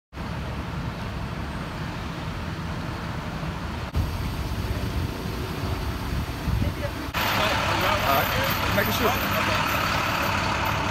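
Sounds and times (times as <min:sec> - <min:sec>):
traffic rumble and hiss: 0:00.1 - 0:10.9.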